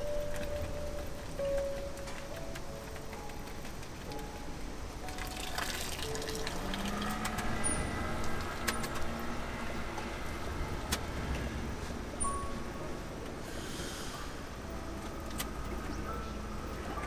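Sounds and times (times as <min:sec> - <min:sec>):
strainers shaken draining water: 0:05.2 - 0:07.3.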